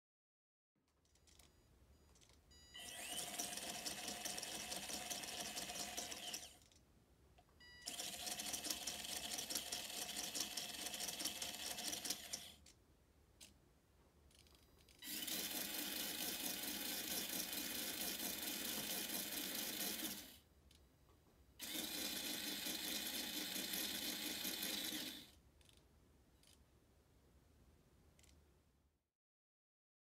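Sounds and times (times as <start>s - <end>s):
electric motor whirring through gears: 2.8s - 6.7s, 7.9s - 12.5s, 15.0s - 20.4s, 21.6s - 25.4s.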